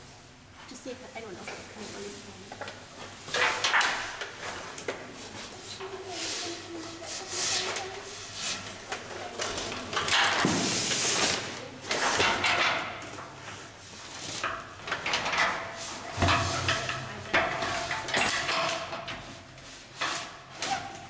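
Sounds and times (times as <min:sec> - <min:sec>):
quiet voices: 0:05.1 - 0:09.9.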